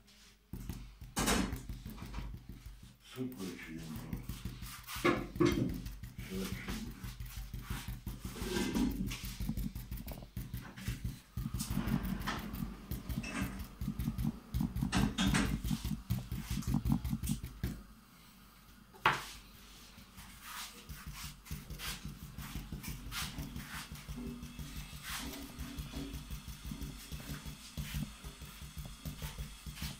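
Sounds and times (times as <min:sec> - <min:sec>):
paint dabbing on canvas: 0:00.0 - 0:18.0, 0:19.0 - 0:29.9
handling rumble: 0:05.3 - 0:17.8.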